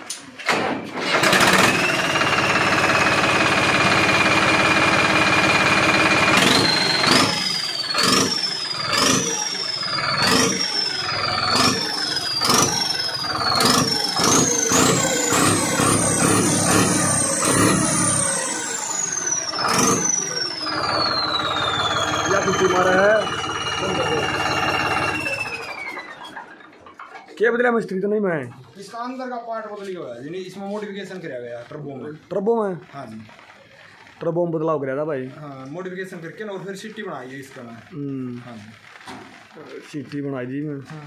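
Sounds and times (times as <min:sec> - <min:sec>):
tractor diesel engine blipping: 0:01.1 - 0:26.6
turbo whistling: 0:05.4 - 0:26.3.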